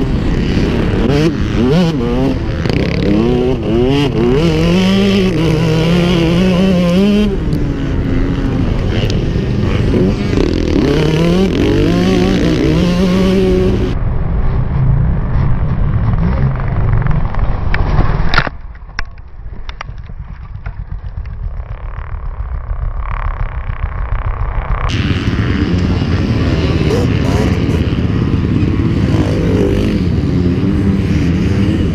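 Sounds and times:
dirt bike engine revving: 0.0s - 14.0s, 20.8s - 31.9s
wind noise: 0.0s - 31.9s.

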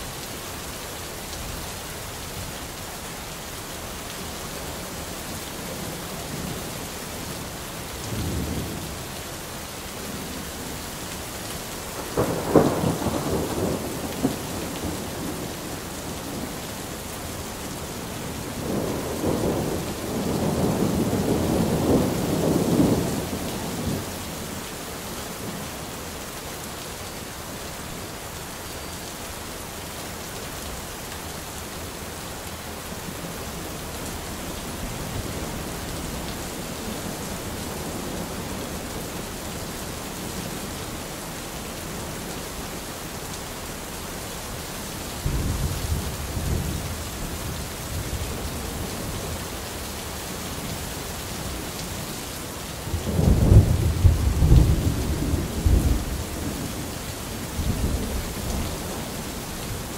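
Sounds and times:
steady rain falling: 0.0s - 59.9s
thunder rumbling: 12.0s - 16.6s, 52.9s - 56.7s.

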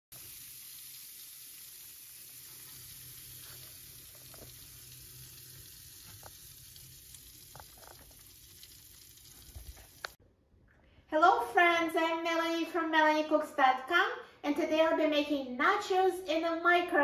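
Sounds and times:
cheese sizzling: 0.1s - 10.2s.

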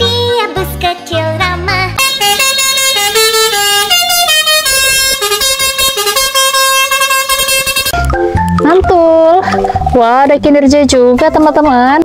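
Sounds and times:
musical air horn playing tune: 2.0s - 8.0s.

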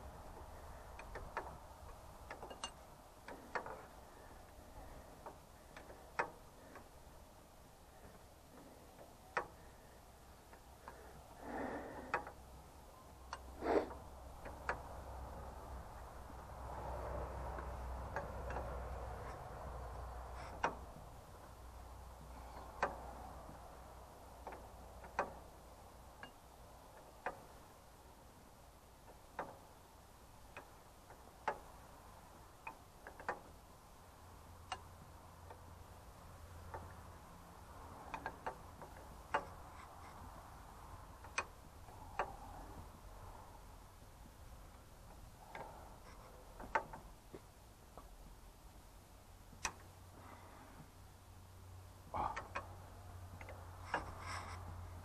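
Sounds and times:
spanner clicking on nuts: 0.3s - 4.6s, 17.5s - 27.7s, 32.5s - 33.7s, 53.3s - 54.8s.

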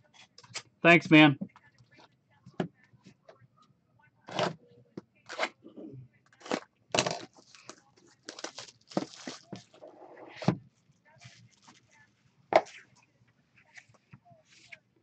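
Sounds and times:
shrink wrap tearing: 6.4s - 9.5s.

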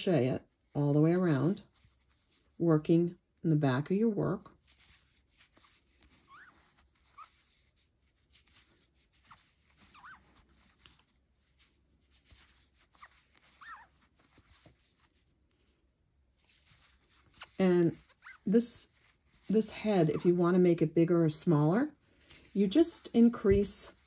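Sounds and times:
yarn squeaking on crochet hook: 6.2s - 7.4s, 9.9s - 10.3s, 12.9s - 14.1s, 17.4s - 18.6s.

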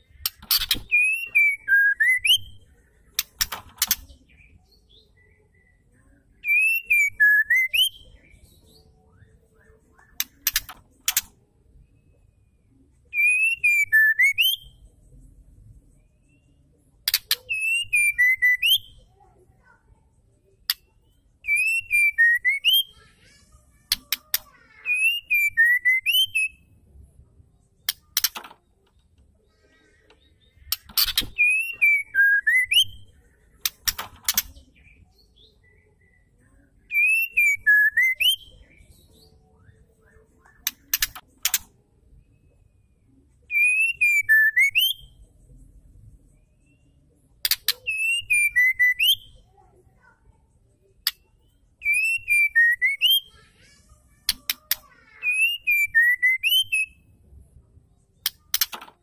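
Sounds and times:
bird whistling song: 0.2s - 11.3s, 13.1s - 14.9s, 15.9s - 19.2s, 20.7s - 23.0s, 23.9s - 26.7s, 30.2s - 41.6s, 43.5s - 45.2s, 46.6s - 49.5s, 51.0s - 53.4s, 54.3s - 57.1s.

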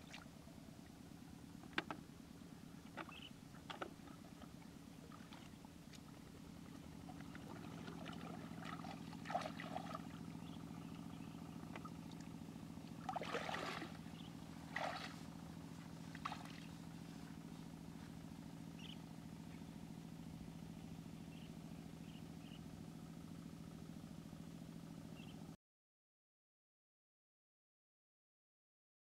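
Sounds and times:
water splashing and sloshing: 0.0s - 0.4s, 2.8s - 17.4s
low motor drone: 0.0s - 25.6s.

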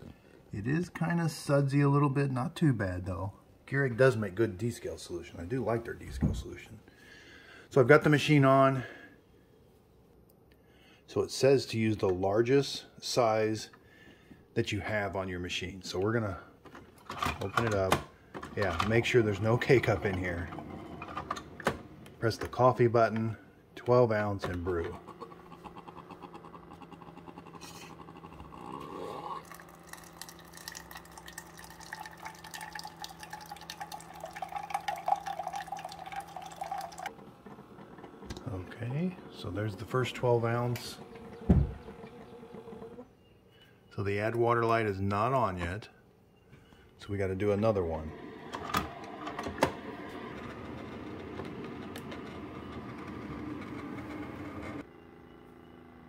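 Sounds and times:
coffee maker humming: 17.4s - 43.3s, 47.3s - 56.0s
liquid pouring into plastic cup: 29.4s - 37.2s.

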